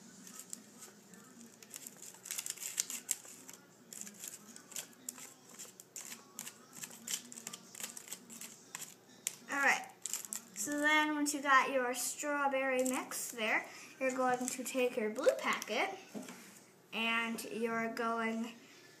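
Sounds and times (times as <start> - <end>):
plastic spoon stirring and scraping: 0.0 - 11.0, 12.5 - 16.5.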